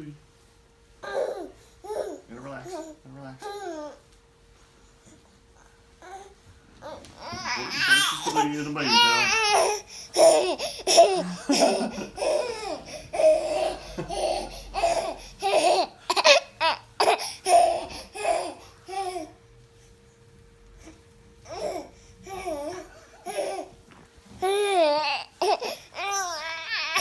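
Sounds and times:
baby laughing: 0:07.3 - 0:19.3.

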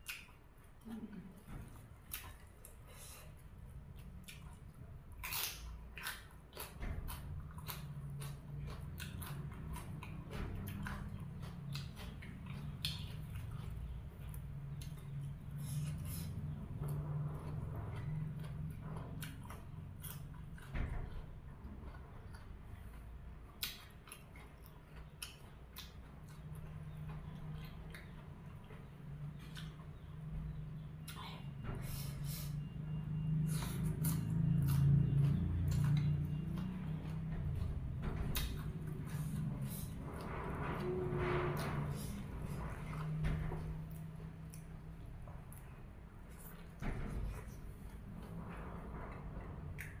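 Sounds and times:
person chewing crunchy vegetables: 0:00.0 - 0:16.5, 0:21.9 - 0:30.1.

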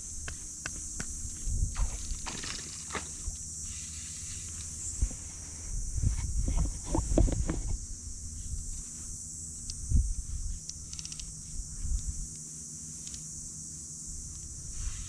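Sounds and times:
fly rod handling knocks and rubbing: 0:06.4 - 0:07.8.

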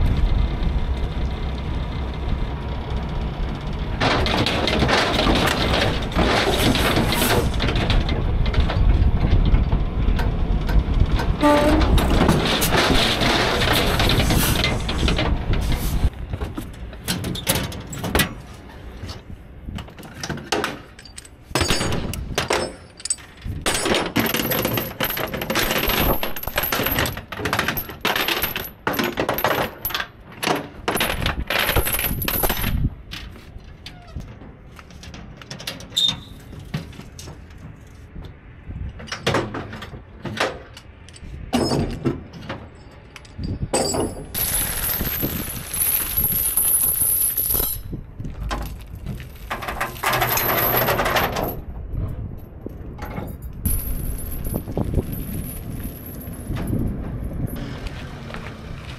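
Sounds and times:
irregular knocks and clatters: 0:04.0 - 0:18.4.

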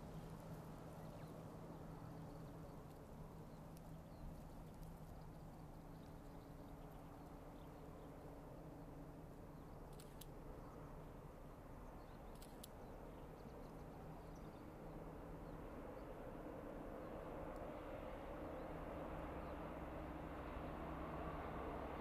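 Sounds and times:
distant diesel train drone: 0:00.0 - 0:22.0
faint sharp clicks: 0:02.8 - 0:06.4, 0:09.8 - 0:10.4, 0:12.1 - 0:13.0.

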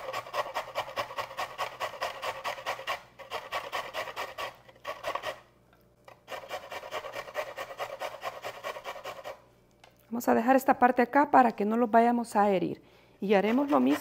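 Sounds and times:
carrot grating on metal grater: 0:00.0 - 0:05.5, 0:06.2 - 0:09.4, 0:13.3 - 0:14.0.

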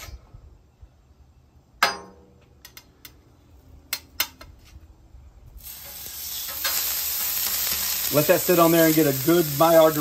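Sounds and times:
meat sizzling on griddle: 0:05.6 - 0:10.0.

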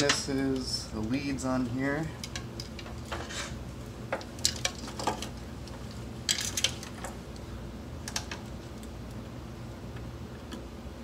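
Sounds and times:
low steady hum: 0:00.0 - 0:11.0
plastic connectors clicking and rattling: 0:04.1 - 0:07.2.

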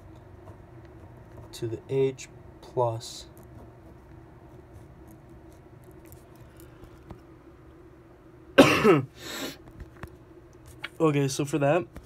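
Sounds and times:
person coughing: 0:08.6 - 0:09.6.

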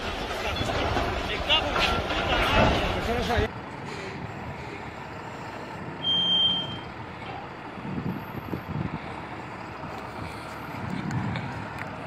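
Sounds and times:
truck engine running: 0:00.0 - 0:12.0
electronic warning beep: 0:06.0 - 0:06.9.

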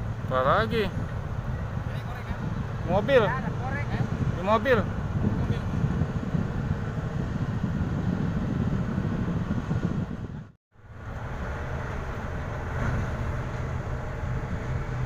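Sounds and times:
vehicle engine rumble: 0:00.0 - 0:15.0.

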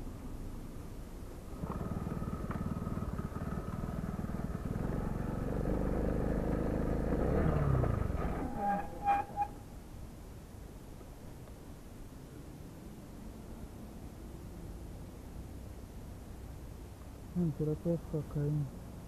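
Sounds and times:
small petrol engine revving: 0:01.5 - 0:09.1
short high squeaks: 0:08.2 - 0:09.7.

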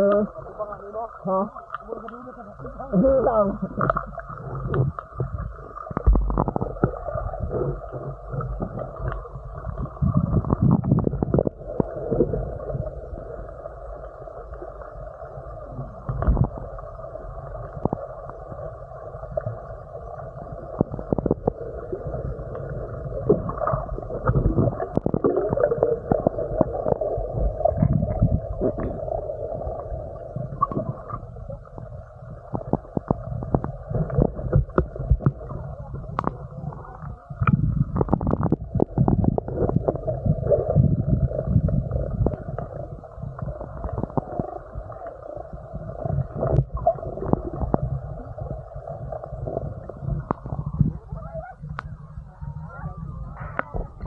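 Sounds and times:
muffled underwater water rumble: 0:00.0 - 0:54.0.

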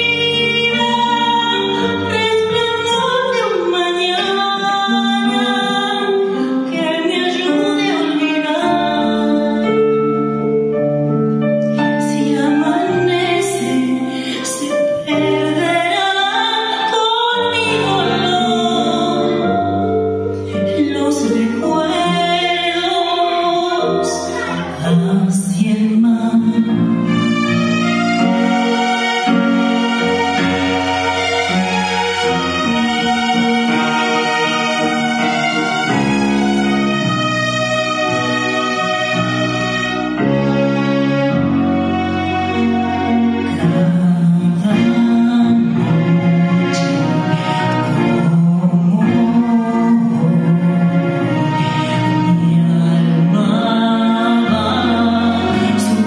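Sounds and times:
woman singing into a microphone: 0:00.0 - 0:10.4, 0:11.8 - 0:27.1, 0:43.5 - 0:56.0
instrumental accompaniment: 0:00.0 - 0:56.0.

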